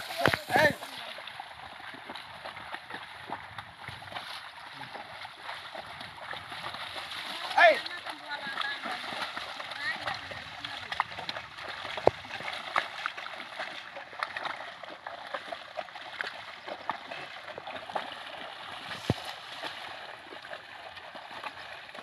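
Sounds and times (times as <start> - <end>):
muddy water splashing: 0.0 - 22.0.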